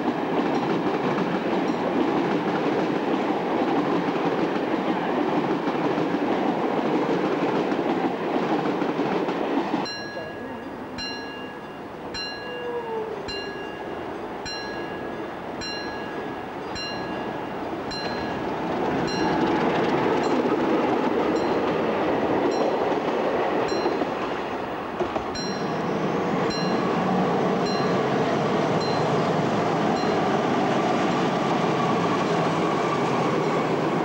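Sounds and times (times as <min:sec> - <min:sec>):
diesel locomotive engine: 0:00.0 - 0:34.0
train rumble: 0:00.0 - 0:34.0
level crossing bell ringing: 0:09.9 - 0:18.4.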